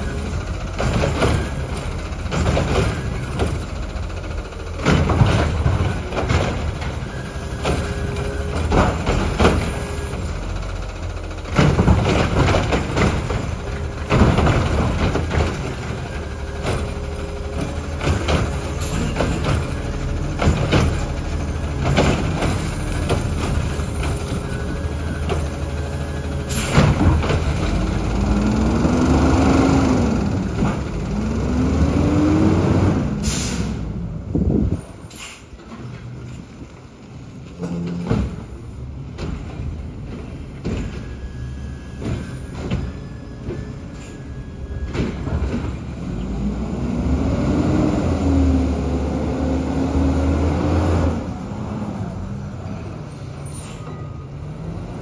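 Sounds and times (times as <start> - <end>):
knocks and clanks: 0.0 - 32.2, 37.3 - 44.0, 44.7 - 46.4
garbage truck running: 0.0 - 55.0
truck whines: 0.0 - 55.0.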